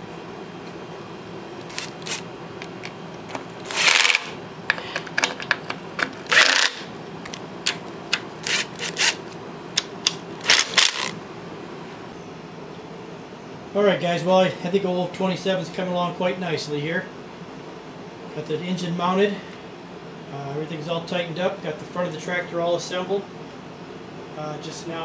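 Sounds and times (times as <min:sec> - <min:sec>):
cordless power driver bursts: 0:03.6 - 0:04.4, 0:06.2 - 0:06.9, 0:08.4 - 0:09.2, 0:10.4 - 0:11.2.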